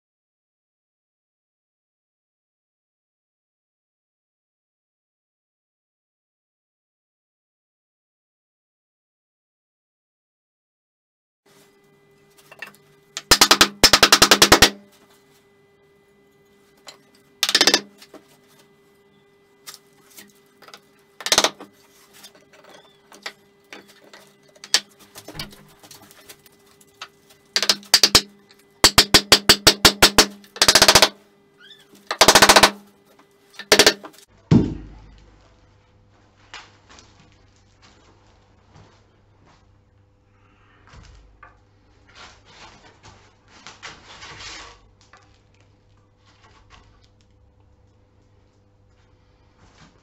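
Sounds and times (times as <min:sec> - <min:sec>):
wooden mallet knocking: 0:33.8 - 0:35.2
heavy thump: 0:34.5 - 0:35.2.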